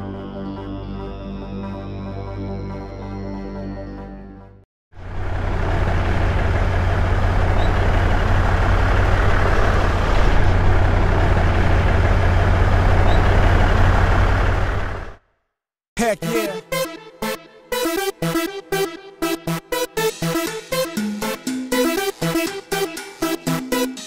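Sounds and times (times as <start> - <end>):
truck engine rumbling: 5.0 - 15.2.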